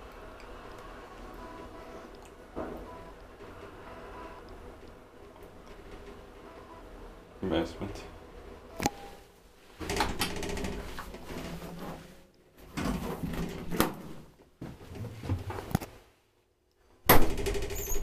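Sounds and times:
elevator motor hum: 0.0 - 9.2
elevator car clunk: 2.4 - 7.0.

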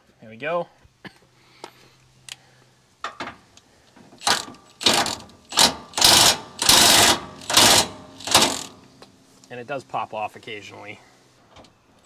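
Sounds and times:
impact wrench hammering on bolt: 4.2 - 8.9.

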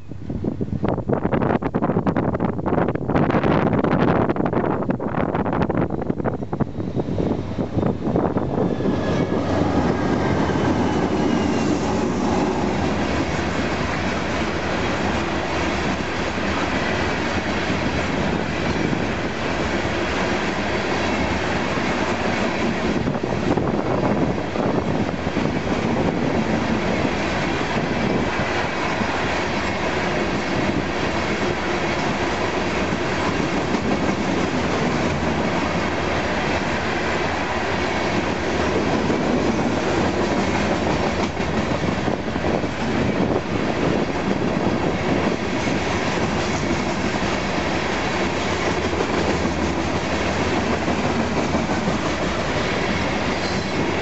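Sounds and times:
diesel locomotives passing: 0.0 - 54.0
train wheels clicking over rail joints: 43.9 - 54.0.

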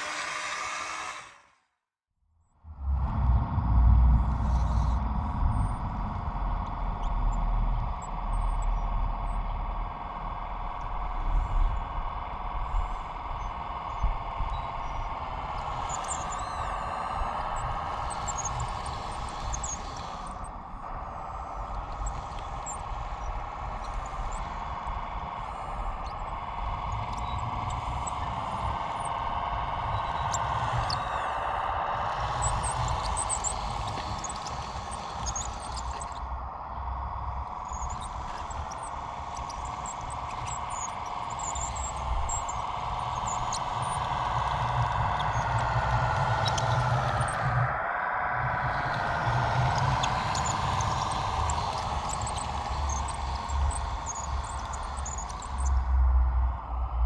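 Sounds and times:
electric motor whining: 0.0 - 1.5, 25.4 - 36.4, 48.8 - 55.9
low rumble: 2.6 - 8.2.

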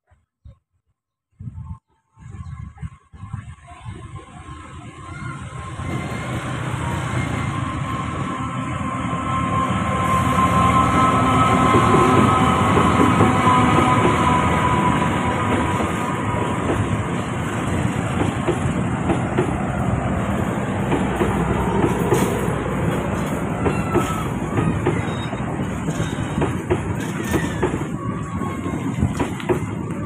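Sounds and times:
train wheels squealing: 4.3 - 18.8, 20.9 - 30.0
train wheels clattering over rail joints: 15.2 - 30.0.

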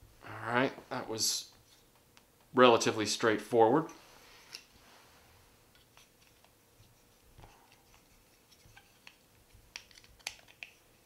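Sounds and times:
plastic toy parts clicking: 9.0 - 10.8.

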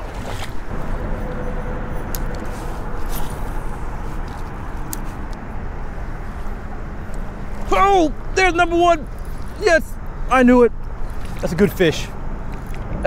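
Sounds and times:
river rushing: 0.0 - 9.8.

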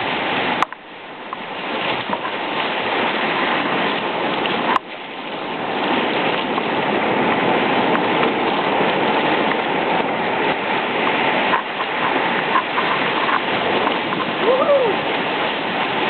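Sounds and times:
whitewater rushing: 0.0 - 16.0.

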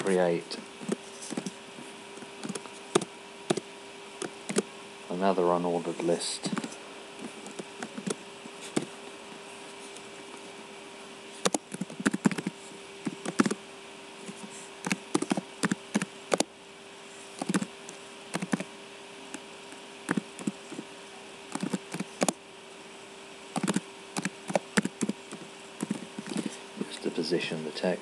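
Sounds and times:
faint hum and hiss: 0.0 - 28.0
keyboard typing: 2.4 - 3.6, 4.2 - 4.7, 6.5 - 8.9, 11.4 - 13.6, 14.3 - 16.5, 17.4 - 17.7, 18.3 - 18.7, 20.1 - 20.8, 21.5 - 22.4, 23.6 - 26.5.

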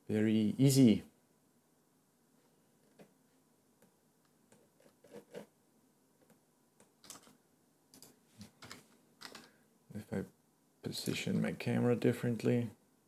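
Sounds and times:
computer mouse clicks: 6.2 - 9.5.

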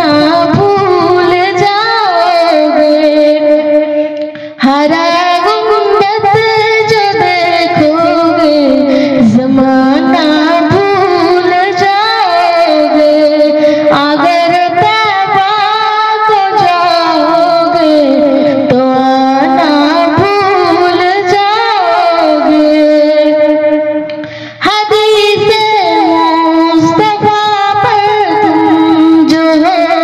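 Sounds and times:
person singing devotional song: 0.0 - 30.0.

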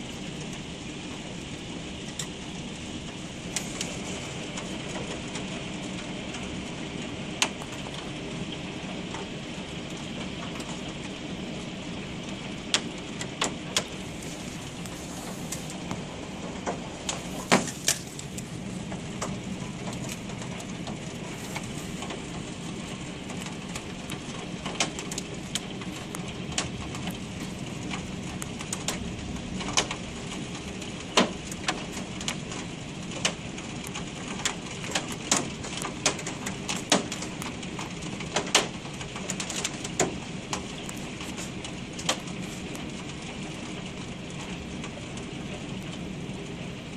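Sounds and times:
hiss of falling hail: 0.0 - 46.9
hailstones striking window glass: 12.7 - 32.4, 33.1 - 43.0.

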